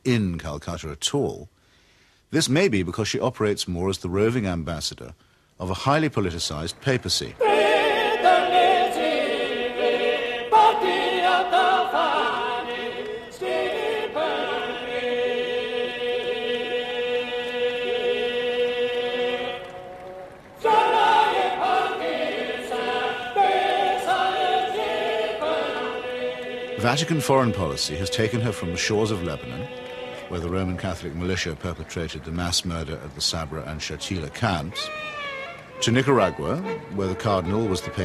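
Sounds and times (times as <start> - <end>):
choir singing held notes: 7.2 - 34.9.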